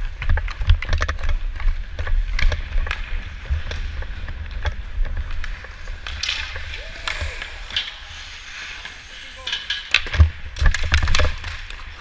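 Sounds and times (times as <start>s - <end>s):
skate blades scraping ice: 0.0s - 12.0s.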